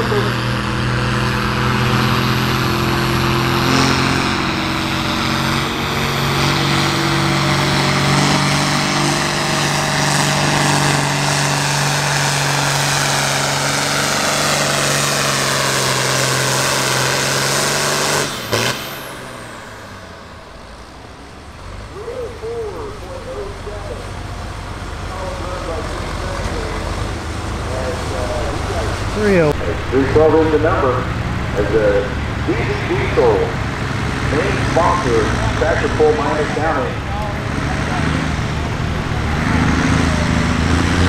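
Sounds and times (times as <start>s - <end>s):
diesel tractor engine at full throttle: 0.0s - 41.0s.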